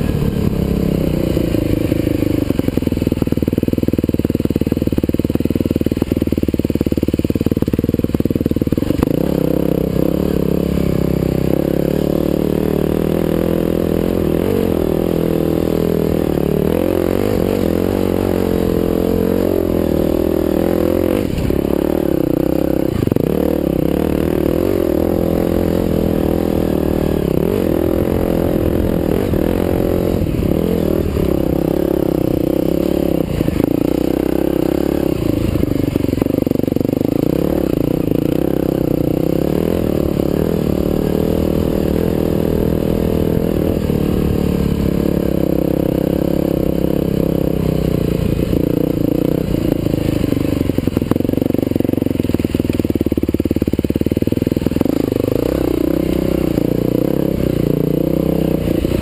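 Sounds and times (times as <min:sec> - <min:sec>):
dirt bike engine revving: 0:00.0 - 0:59.0.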